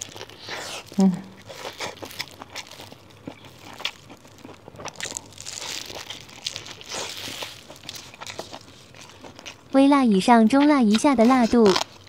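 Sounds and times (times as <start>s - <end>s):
plastic bag crinkling: 0.0s - 9.7s, 10.8s - 12.0s
wet chewing: 0.0s - 12.0s.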